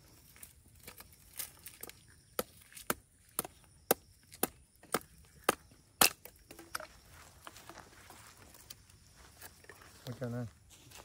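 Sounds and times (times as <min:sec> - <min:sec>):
knife chopping dry sticks: 0:01.6 - 0:06.7.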